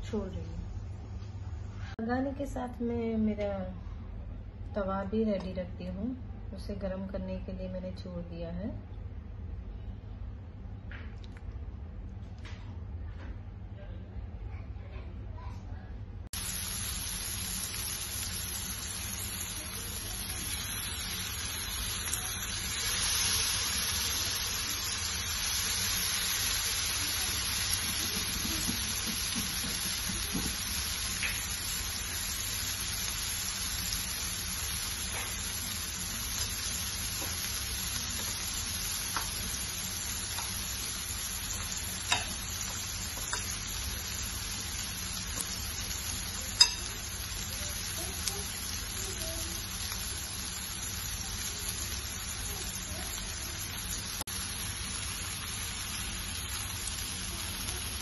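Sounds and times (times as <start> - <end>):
chicken sizzling in oil: 16.3 - 58.0.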